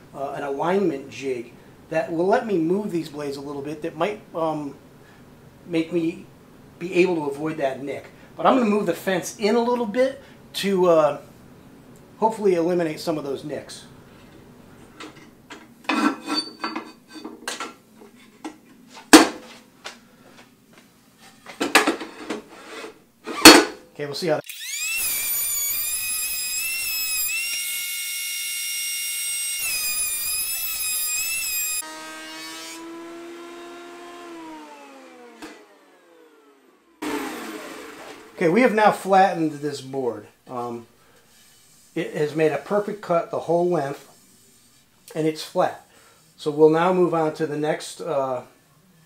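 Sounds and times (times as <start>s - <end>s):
jointer motor whine: 24.4s - 38.4s.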